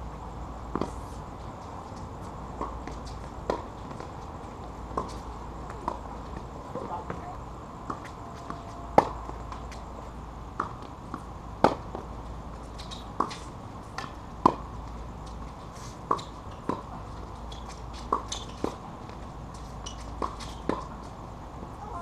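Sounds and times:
tennis balls struck by rackets: 2.4s - 21.2s
ball bouncing on hard court: 4.9s - 9.8s.

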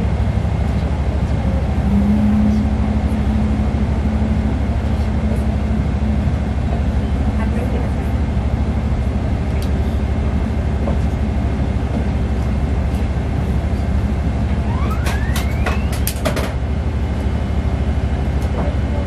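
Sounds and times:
airliner cabin rumble: 0.0s - 19.0s
rising whine: 1.3s - 6.6s, 14.0s - 17.4s.

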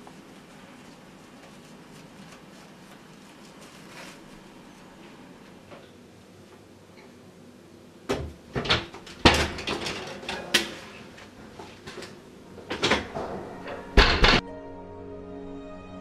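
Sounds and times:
soft music: 12.4s - 16.0s
door banging: 12.5s - 14.4s.

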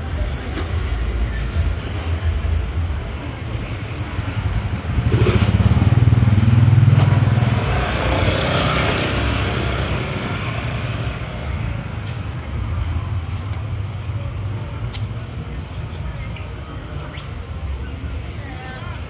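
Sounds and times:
vehicle engine passing by: 4.3s - 12.0s.

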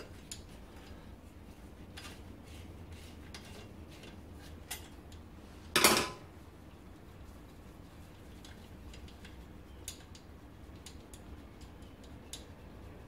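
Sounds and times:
metallic clicks of wire spokes: 0.0s - 1.0s, 3.3s - 6.1s, 8.4s - 12.8s.

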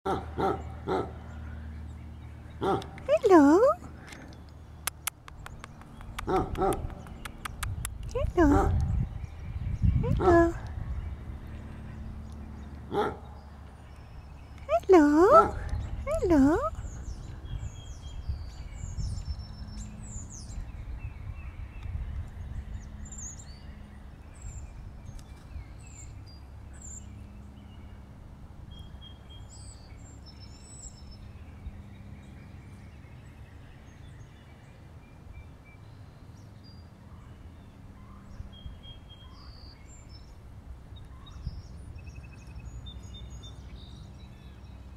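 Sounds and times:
songbirds chirping: 0.1s - 44.9s
steady low rumble: 3.8s - 14.8s.

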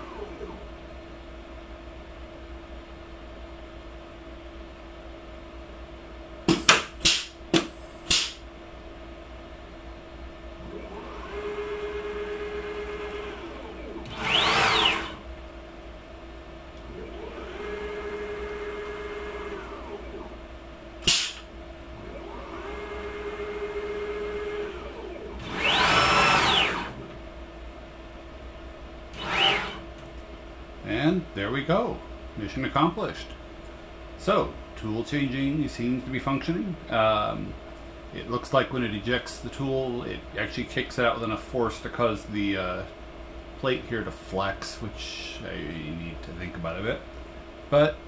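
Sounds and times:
stepper motor axes whining: 0.0s - 0.7s, 10.6s - 15.3s, 16.8s - 20.4s, 21.0s - 27.2s, 29.1s - 30.1s.

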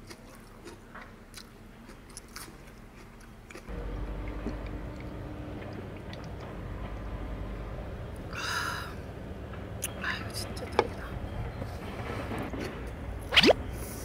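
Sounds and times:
person chewing food: 0.0s - 5.1s
steady low rumble: 3.7s - 14.0s.

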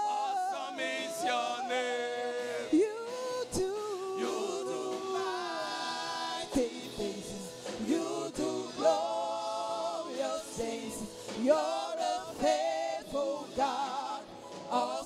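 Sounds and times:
man leading gospel chorus: 0.0s - 15.0s
women backing singers: 0.0s - 15.0s.

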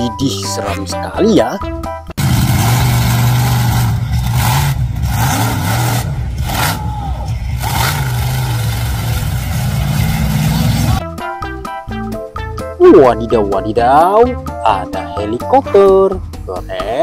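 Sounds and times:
truck engine running hard: 2.2s - 11.0s.

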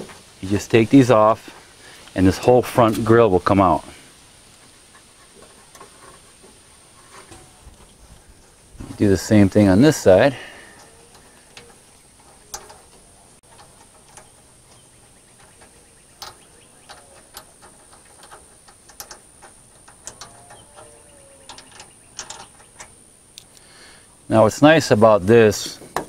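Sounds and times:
wing nut metallic clicks: 9.2s - 23.7s.

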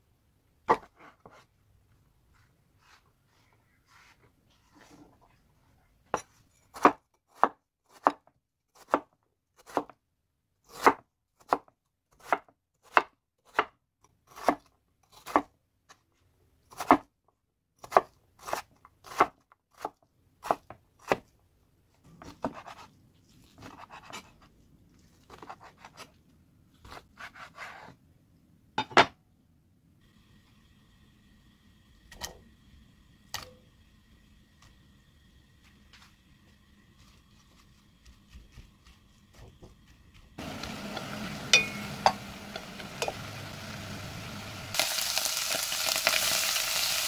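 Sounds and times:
knife chopping on wooden board: 6.7s - 9.1s.

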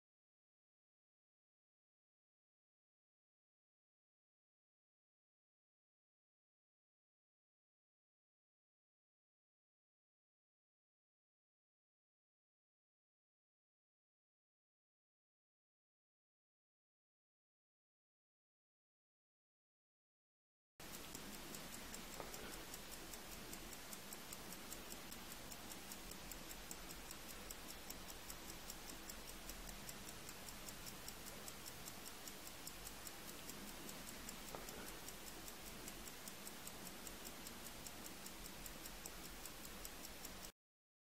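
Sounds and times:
mechanical watch ticking: 20.8s - 40.6s.

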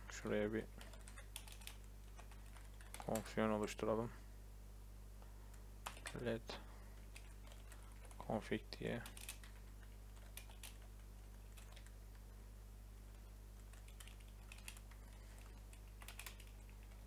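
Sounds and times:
low electrical hum: 0.0s - 17.0s
keyboard keystrokes: 5.8s - 6.2s, 13.7s - 17.0s.

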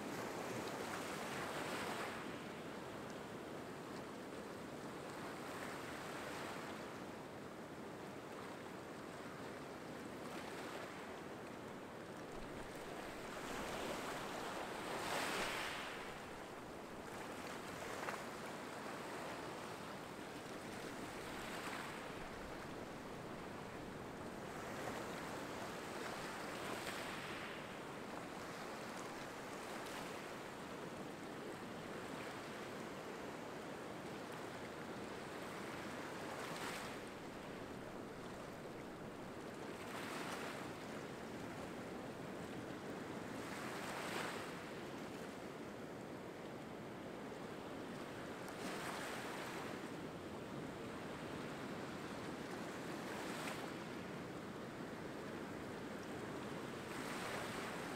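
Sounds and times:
waves breaking on rocky shore: 12.6s - 17.0s.

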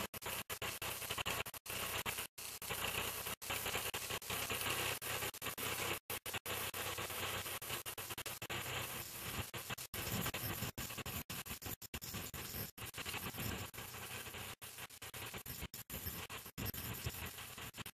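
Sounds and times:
tractor and reaper-binder cutting wheat: 0.2s - 9.6s.

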